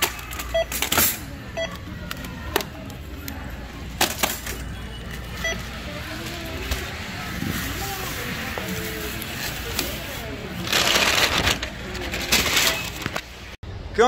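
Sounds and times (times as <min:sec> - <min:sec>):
scanner beeps: 0:00.4 - 0:00.8, 0:04.7 - 0:05.8
plastic wrap rustling: 0:07.5 - 0:13.2.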